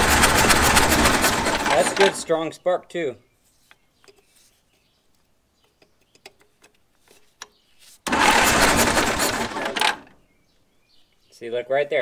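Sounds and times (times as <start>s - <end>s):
small engine cranking over: 0.0s - 2.3s, 8.1s - 10.2s.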